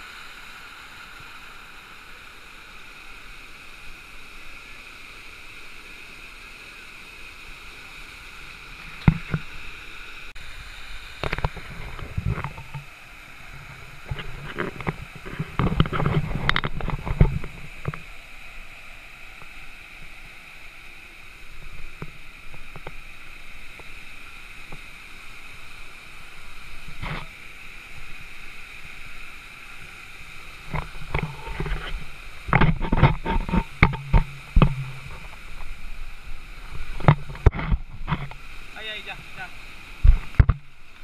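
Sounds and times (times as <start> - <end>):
small waterfall pouring into pool: 0.0 - 41.0.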